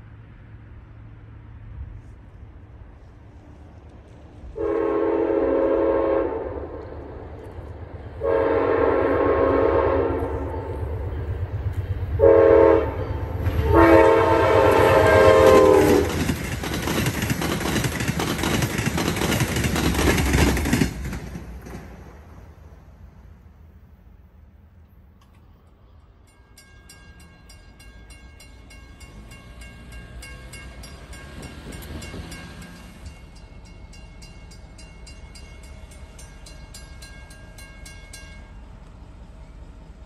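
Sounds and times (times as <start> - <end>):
train passing rumble: 0.0 - 40.0
train horn blasts: 4.5 - 7.2, 8.2 - 11.3, 12.1 - 16.2
wheel clatter on rails: 15.4 - 22.2.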